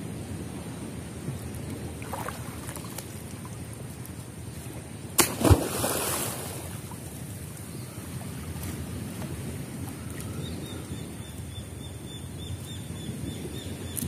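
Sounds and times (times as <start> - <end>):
water sloshing around person wading: 2.0 - 4.0, 5.2 - 7.4
loud splash in water: 5.2 - 6.8.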